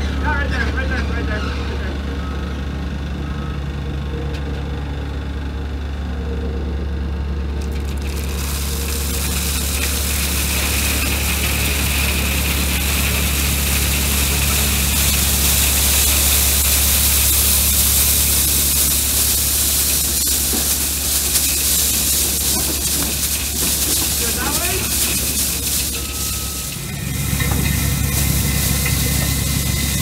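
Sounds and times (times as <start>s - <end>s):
excavator engine running: 0.0s - 30.0s
gravel pouring into steel box: 7.6s - 30.0s.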